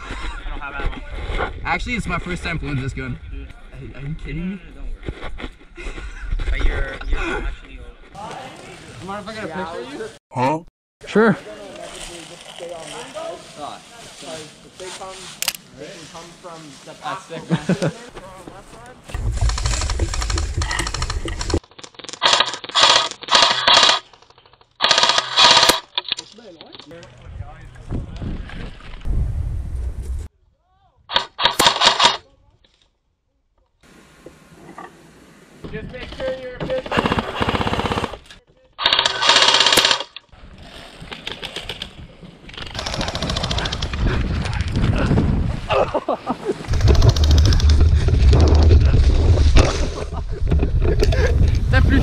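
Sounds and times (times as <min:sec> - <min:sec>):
airsoft guns firing full-auto: 0:22.2 - 0:24.0, 0:24.8 - 0:25.8, 0:36.9 - 0:38.2, 0:38.8 - 0:40.1, 0:42.7 - 0:43.9
loud rumble with clicking: 0:46.7 - 0:49.0.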